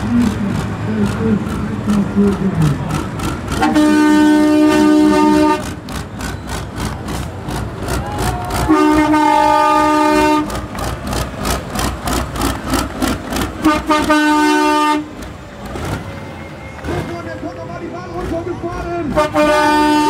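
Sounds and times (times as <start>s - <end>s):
diesel engine running: 0.0s - 20.0s
two-tone truck air horn: 3.6s - 5.8s, 8.7s - 10.6s, 13.6s - 15.1s, 19.1s - 20.0s.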